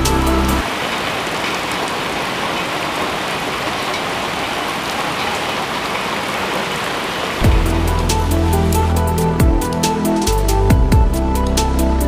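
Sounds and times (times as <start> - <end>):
rain on gravel: 0.0 - 9.0.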